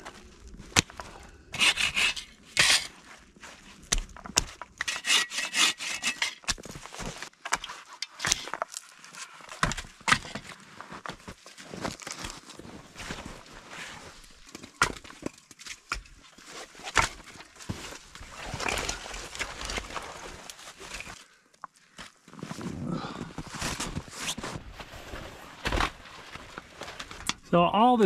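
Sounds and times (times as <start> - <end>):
branches cracking and rustling: 0.0 - 4.8, 6.4 - 27.4
hand saw rasping through wood: 1.6 - 2.9, 4.8 - 6.4.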